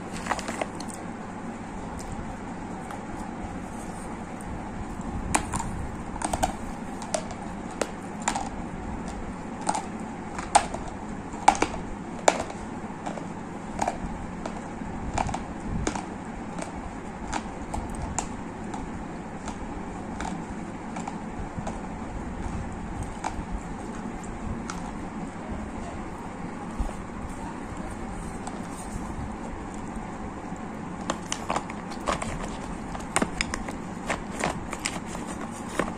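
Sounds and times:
low background noise: 0.0s - 35.9s.

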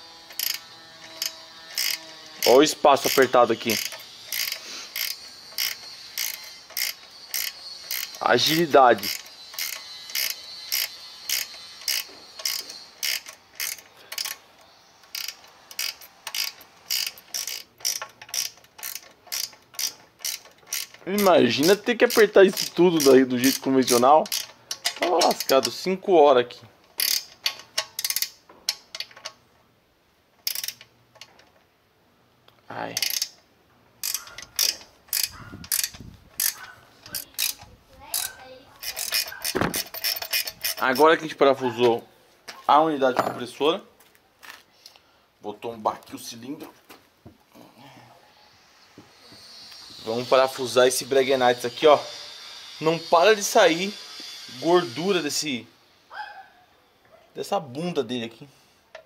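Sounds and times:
ratcheting wrench clicking: 0.2s - 25.9s, 26.8s - 29.4s, 30.4s - 31.6s, 32.5s - 41.2s.

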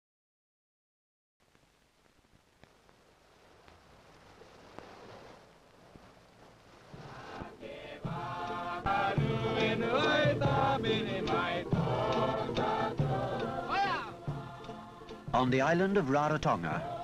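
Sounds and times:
group of voices singing: 7.0s - 15.6s, 16.3s - 17.0s.

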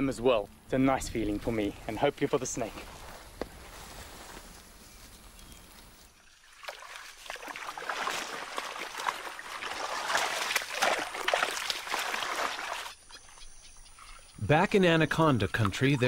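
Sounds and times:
muddy water sloshing and splashing: 6.2s - 14.3s, 15.1s - 16.0s.

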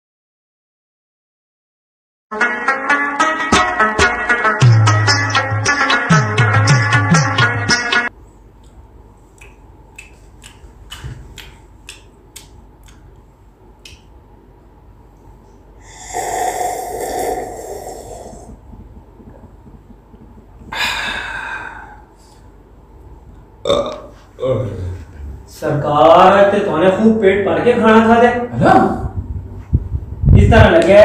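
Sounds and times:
sitar music: 2.3s - 8.1s
long breathy exhale: 15.8s - 18.5s, 20.7s - 22.4s
loud burp: 15.9s - 18.6s, 23.6s - 24.9s.

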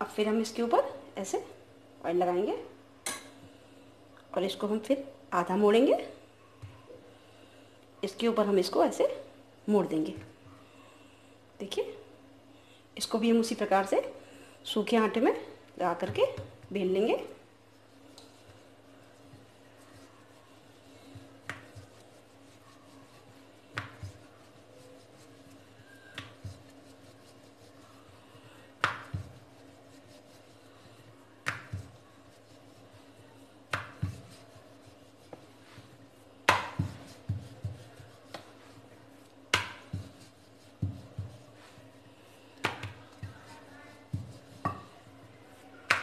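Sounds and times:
faint steady hum: 0.0s - 46.0s
rolling pin rolling dough: 14.7s - 46.0s
rolling pin knocking on stone: 36.5s - 37.9s, 44.2s - 44.9s.

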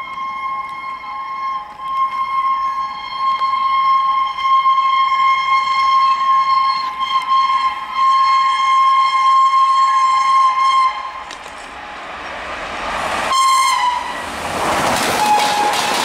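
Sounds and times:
locomotive air horn blasts: 0.0s - 11.4s, 13.3s - 14.3s, 15.1s - 16.0s
train rushing past: 7.9s - 16.0s.

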